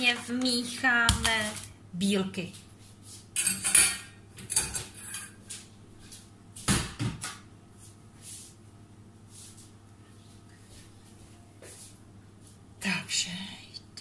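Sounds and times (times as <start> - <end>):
utensils clattering: 3.4 - 5.4.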